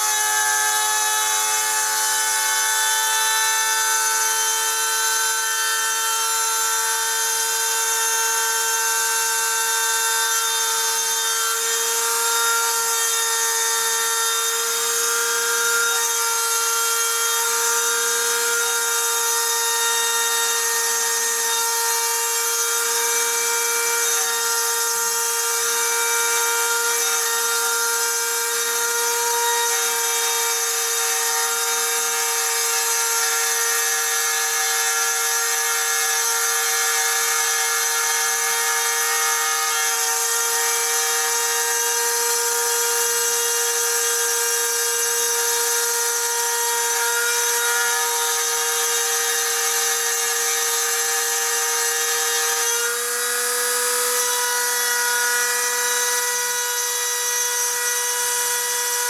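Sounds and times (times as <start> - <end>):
rotary tool whining: 30.3 - 59.0.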